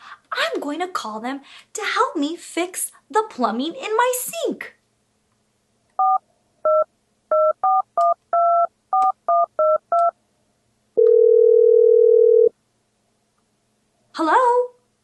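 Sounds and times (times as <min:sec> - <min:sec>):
keypad dialing beeps: 0:06.0 - 0:10.1
telephone ringing tone: 0:11.0 - 0:12.5.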